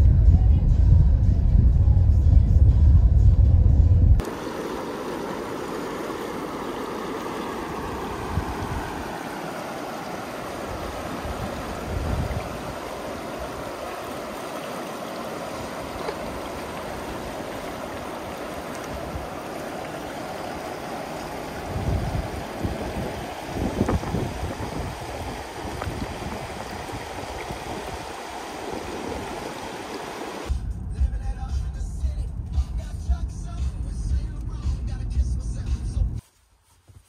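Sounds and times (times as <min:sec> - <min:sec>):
wind gusts on microphone: 0:00.0 - 0:30.5
river rushing over rocks: 0:04.2 - 0:30.5.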